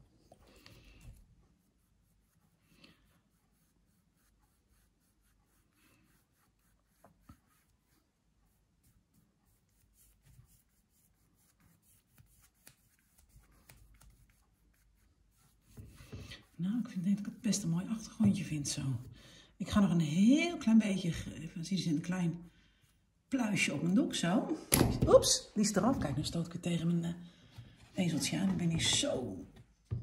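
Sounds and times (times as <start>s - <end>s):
brush strokes on canvas: 0.0s - 19.1s.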